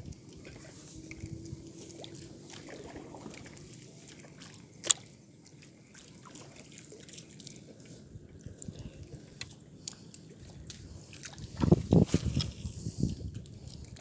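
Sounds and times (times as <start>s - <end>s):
water sloshing around boat: 0.0s - 14.0s.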